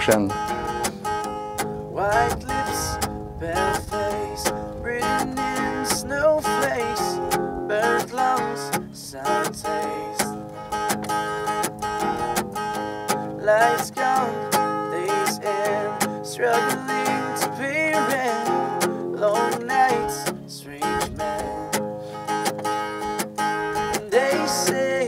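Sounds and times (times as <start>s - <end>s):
acoustic guitar strumming: 0.0s - 25.0s
man singing: 1.9s - 10.4s, 13.4s - 21.9s, 23.7s - 25.0s.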